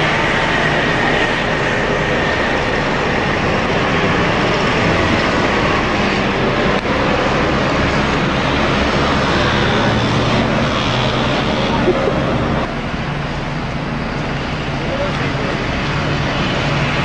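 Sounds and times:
city traffic noise: 0.0s - 17.0s.

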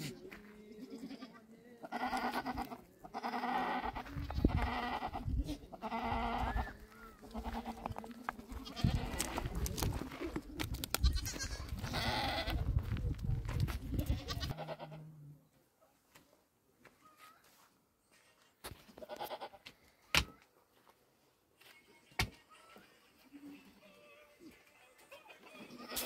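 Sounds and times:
goats bleating: 0.0s - 12.6s, 13.9s - 15.1s, 19.0s - 19.7s, 25.2s - 26.0s
stones knocking: 9.0s - 11.4s.

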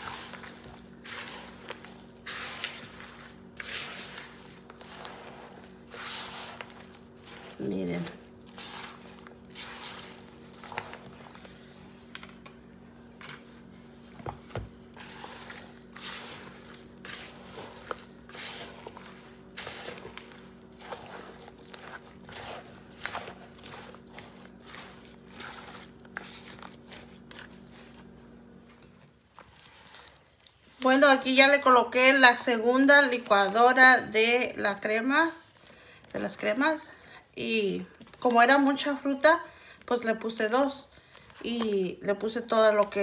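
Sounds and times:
spatula squishing and scraping: 0.0s - 34.1s
steady low hum: 0.0s - 34.6s.

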